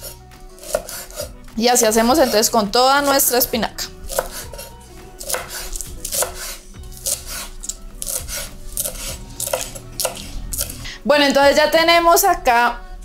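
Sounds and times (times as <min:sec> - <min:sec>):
knife chopping on cutting board: 0:00.0 - 0:01.3, 0:04.1 - 0:10.7.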